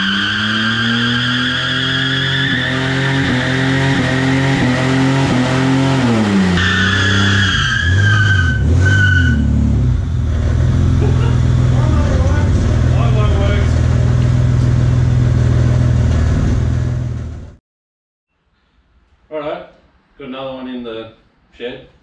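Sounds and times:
car engine revving: 0.0s - 17.6s
tyre squealing: 6.6s - 9.5s.

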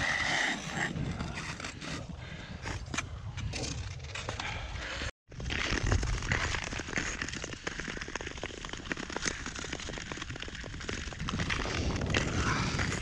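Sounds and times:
ice skate blades scraping ice: 0.0s - 3.0s, 5.5s - 13.0s
wind rumble on microphone: 9.4s - 13.0s.

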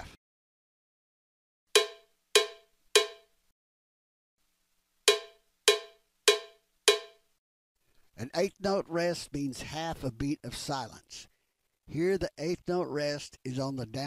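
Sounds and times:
metronome clicks: 1.8s - 3.3s, 5.1s - 7.2s.

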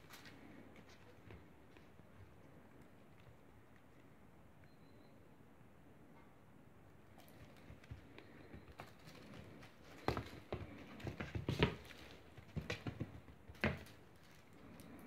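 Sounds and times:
kitten paws thumping on wooden floor: 7.2s - 14.4s.

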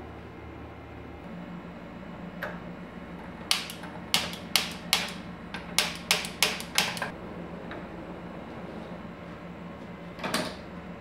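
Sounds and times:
stove spark igniter clicking: 3.5s - 5.2s, 5.8s - 7.1s.

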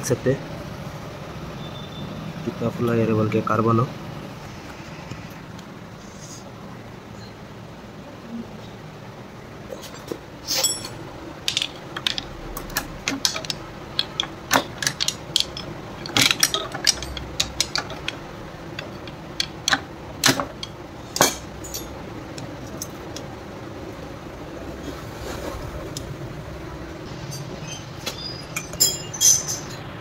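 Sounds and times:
metallic clicks and clanks: 10.0s - 23.3s, 27.2s - 30.0s
ratchet clicking: 11.5s - 21.9s.

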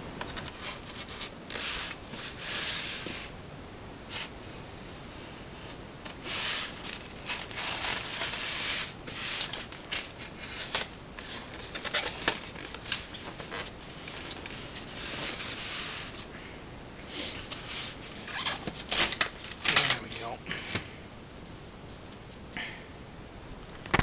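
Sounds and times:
styrofoam scraping and rubbing: 0.4s - 3.3s, 6.2s - 16.3s, 17.1s - 20.4s.

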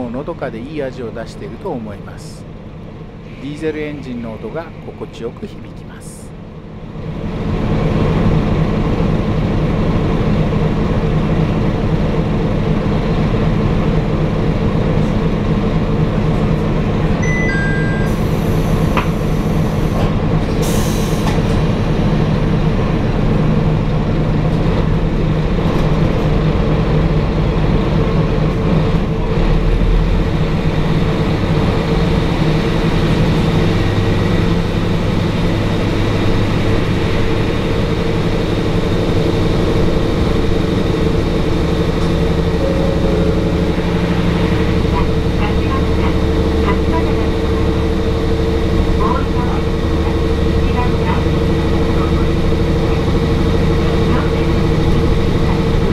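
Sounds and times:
diesel train engine: 0.0s - 55.9s
falling two-note chime: 17.2s - 18.5s, 42.3s - 45.6s.

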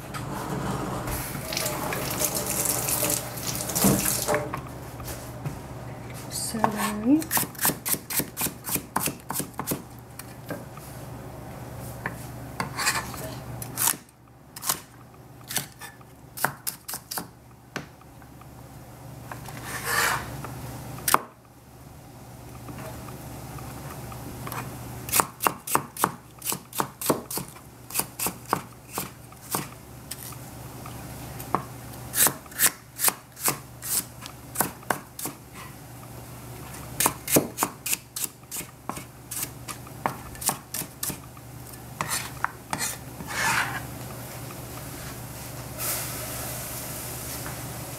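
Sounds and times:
cleaver chopping on cutting board: 7.3s - 9.8s, 37.0s - 38.0s.

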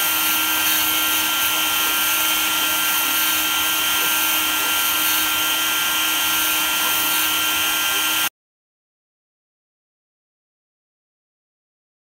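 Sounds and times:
milling spindle high whine: 0.0s - 8.3s.

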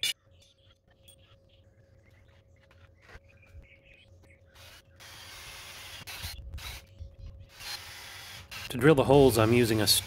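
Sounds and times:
drill grinding into steel: 7.5s - 10.0s.

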